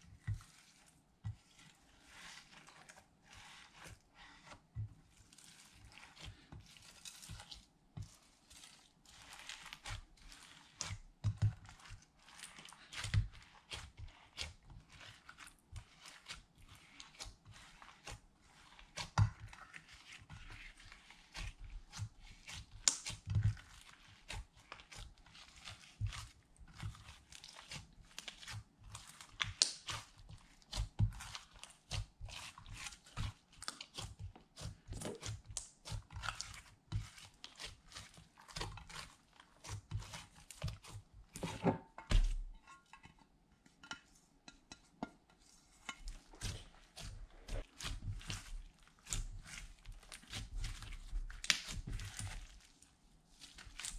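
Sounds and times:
slime squishing and crackling: 5.1s - 41.6s, 46.0s - 53.9s.

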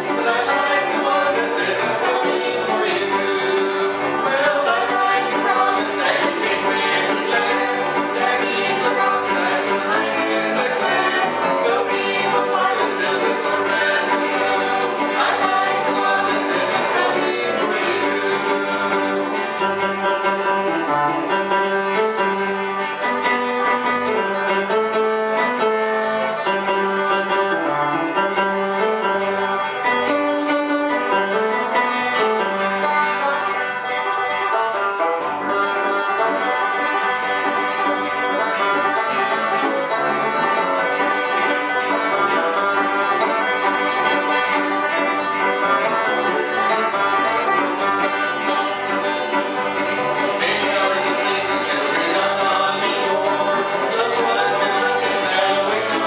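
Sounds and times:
voices singing: 0.0s - 19.7s, 35.4s - 56.0s
acoustic guitar: 0.0s - 56.0s
banjo: 0.0s - 56.0s
piano: 0.0s - 56.0s.

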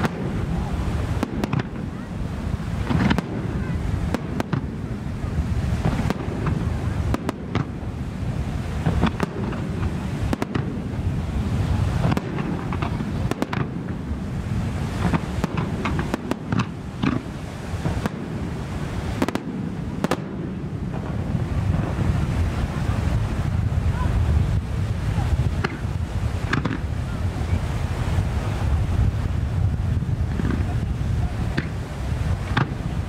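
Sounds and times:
firework shells bursting: 0.0s - 1.9s, 2.8s - 4.8s, 8.8s - 11.0s, 12.0s - 14.0s, 14.9s - 22.2s, 25.6s - 26.9s, 31.5s - 31.8s, 32.4s - 32.8s.

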